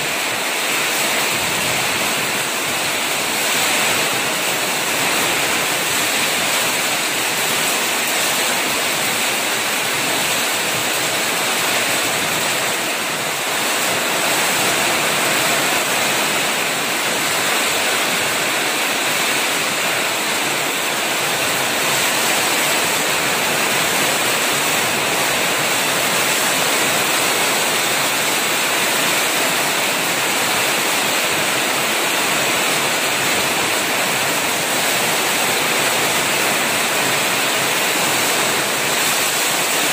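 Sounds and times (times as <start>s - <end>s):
heavy rain on paving and plants: 0.0s - 39.9s.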